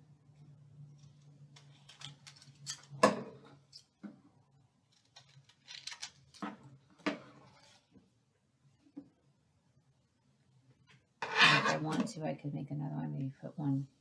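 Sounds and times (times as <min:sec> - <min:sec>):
paper rustling and crinkling: 0:04.9 - 0:06.7.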